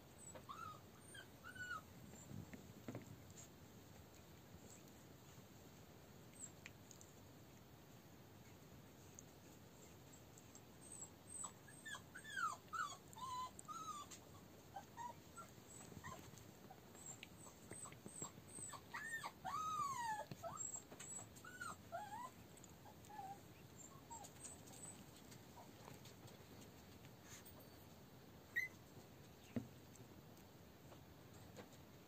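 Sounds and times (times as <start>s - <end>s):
puppies whining: 0.0s - 3.5s, 9.8s - 26.1s, 27.3s - 29.6s.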